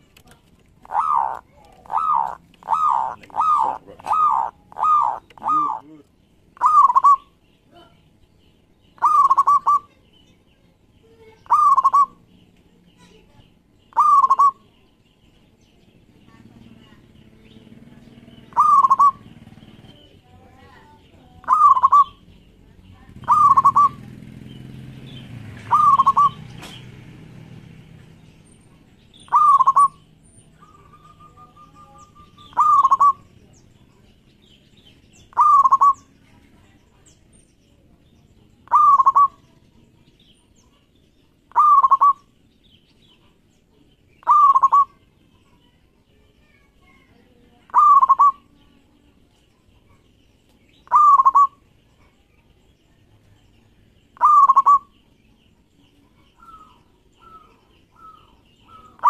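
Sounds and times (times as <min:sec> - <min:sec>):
dove cooing: 0:00.8 - 0:06.0, 0:06.6 - 0:07.4, 0:09.0 - 0:10.0, 0:11.4 - 0:12.3, 0:13.9 - 0:14.7, 0:17.8 - 0:20.2, 0:21.2 - 0:22.3, 0:23.1 - 0:24.4, 0:25.6 - 0:26.8, 0:28.7 - 0:33.5, 0:35.2 - 0:36.4, 0:38.6 - 0:39.5, 0:41.4 - 0:42.4, 0:44.2 - 0:45.6, 0:47.6 - 0:48.6, 0:50.8 - 0:52.2, 0:54.2 - 0:55.0, 0:56.0 - 0:59.0.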